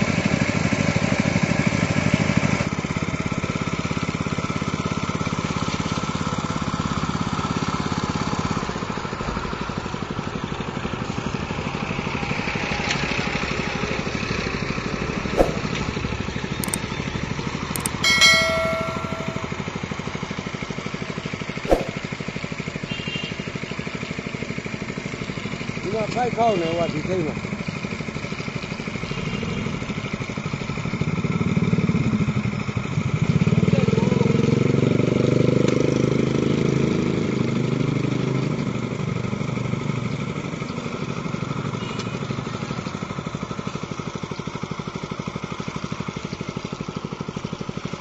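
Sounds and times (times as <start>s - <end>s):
sharp knocks: 15.4s - 15.9s, 21.7s - 22.0s
water pump engine chugging: 42.6s - 48.0s.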